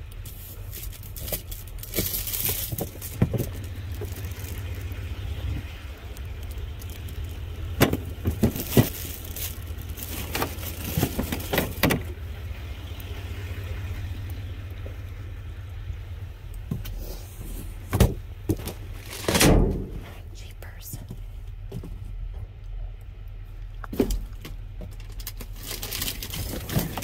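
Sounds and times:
steady low hum: 0:00.0 - 0:27.0
cardboard boxes knocking and clattering: 0:01.2 - 0:03.6, 0:07.8 - 0:09.2, 0:17.9 - 0:18.8.

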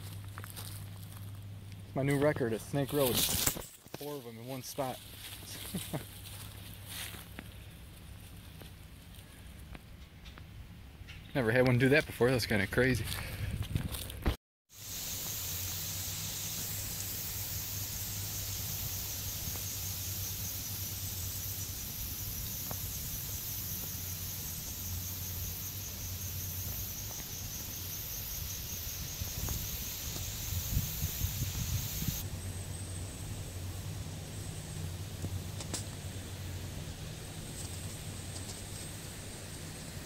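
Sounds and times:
insect trilling: 0:14.7 - 0:33.0
low steady hum: 0:14.8 - 0:40.0.

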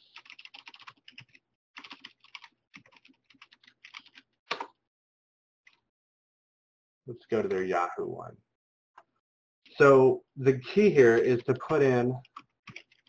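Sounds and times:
typing on computer keyboard: 0:00.1 - 0:04.7, 0:11.2 - 0:13.0.

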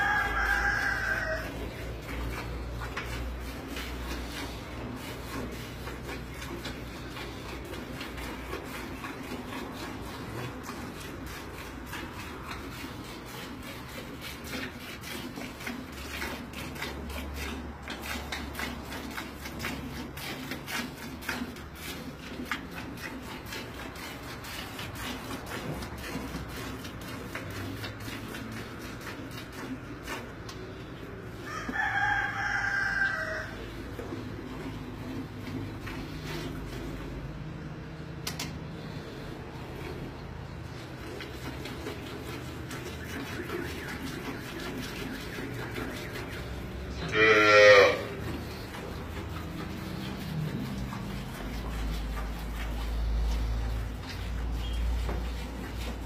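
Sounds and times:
rooster crowing: 0:00.0 - 0:01.6, 0:31.4 - 0:33.6
milk squirting into a pail: 0:00.0 - 0:56.0.

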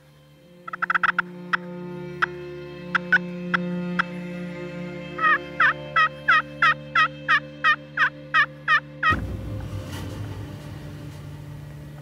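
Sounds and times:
turkey call yelps: 0:00.7 - 0:01.3, 0:05.2 - 0:08.8
low rumble: 0:09.1 - 0:12.0.

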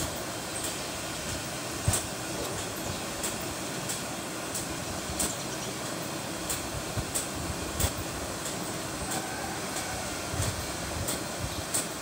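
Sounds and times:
steady rushing background noise: 0:00.0 - 0:12.0.

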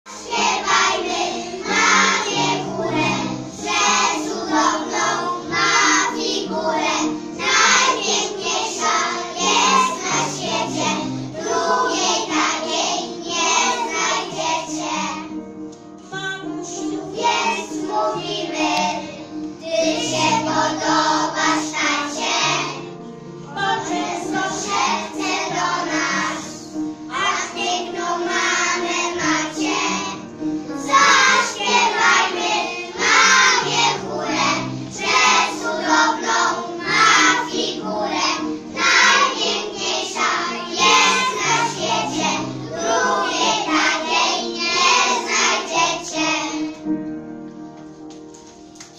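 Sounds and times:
children singing: 0:00.1 - 0:15.4, 0:16.6 - 0:46.9
instrumental backing music: 0:00.1 - 0:48.9.

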